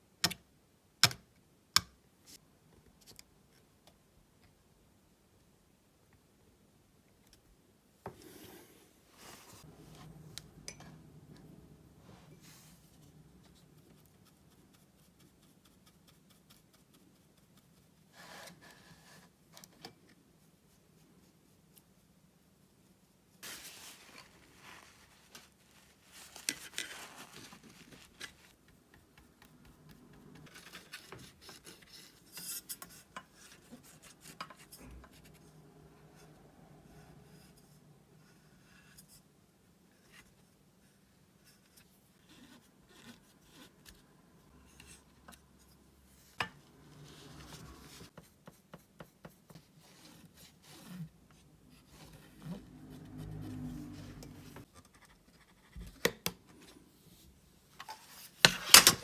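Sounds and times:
tissue rubbing over paint pans: 8.3 - 10.3, 23.4 - 34.2.

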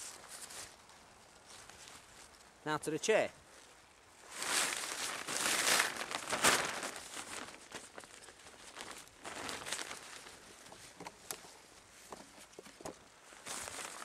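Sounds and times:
fabric rustling and crinkling: 3.5 - 14.0.

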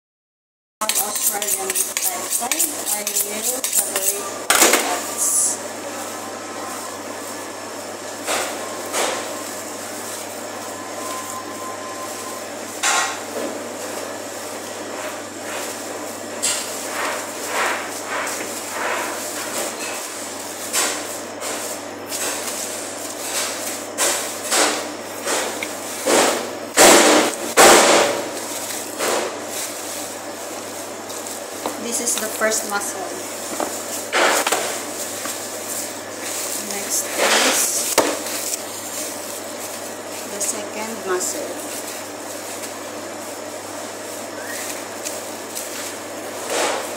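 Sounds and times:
knife cutting raw meat: 0.8 - 4.3.

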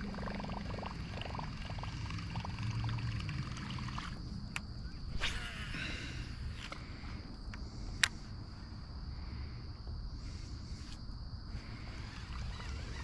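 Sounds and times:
water trickling: 0.0 - 4.2
fishing reel ticking: 11.8 - 13.0.

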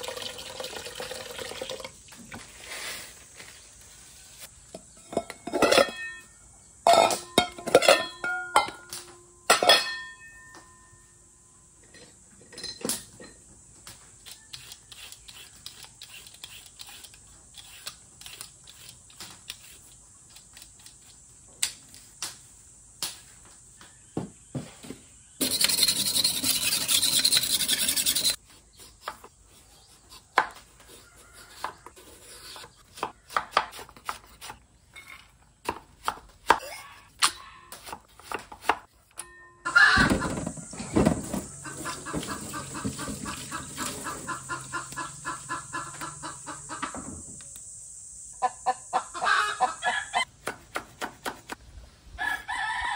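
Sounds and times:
peeler scraping carrot: 14.2 - 21.1, 25.4 - 34.6.

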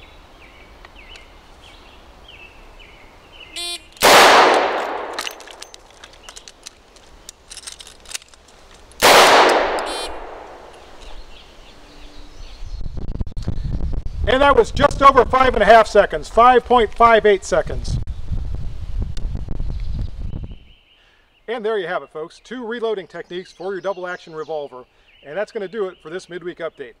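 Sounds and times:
birds chirping: 0.0 - 7.5, 8.7 - 13.0, 19.7 - 27.0
revolver gunshot with echo: 4.0 - 5.2, 9.0 - 10.7.

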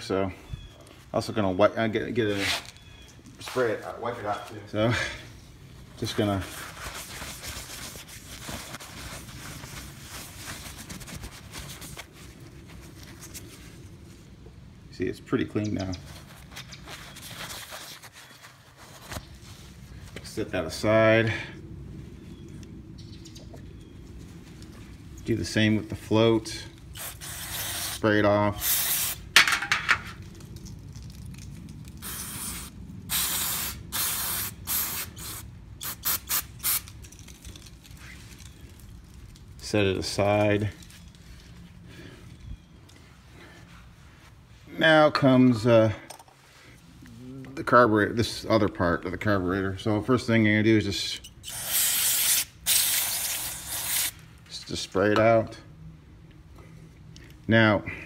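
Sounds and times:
cloth rubbing on plastic: 6.2 - 13.8, 16.1 - 19.7
aerosol spray hissing bursts: 27.0 - 28.0, 28.6 - 29.2, 32.0 - 36.8, 51.5 - 54.1.

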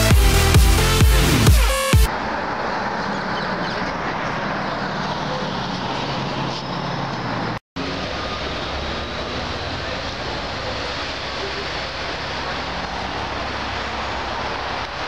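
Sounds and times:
low traffic rumble: 0.0 - 15.0
general hubbub: 7.9 - 14.0.

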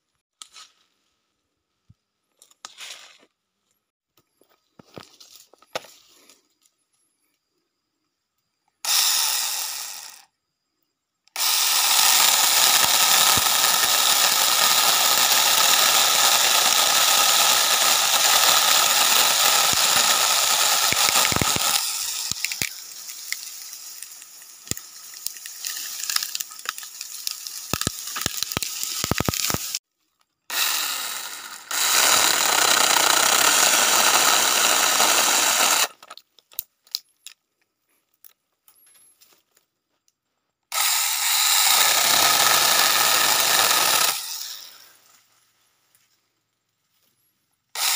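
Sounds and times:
chainsaw whining while cutting wood: 8.8 - 10.3, 11.3 - 29.8, 30.5 - 36.1, 40.7 - 45.0.

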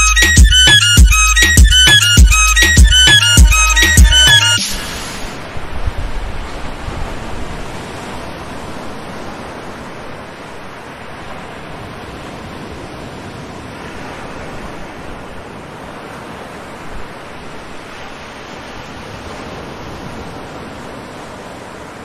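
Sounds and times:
steady rushing noise: 0.0 - 7.7.

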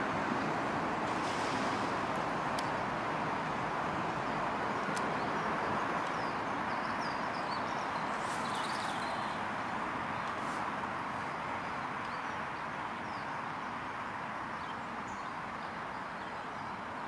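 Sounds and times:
outdoor background noise: 0.0 - 17.0
faint bird chirps: 6.1 - 9.4.

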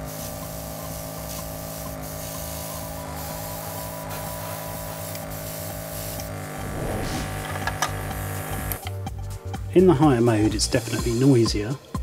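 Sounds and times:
air compressor humming: 0.0 - 8.8.

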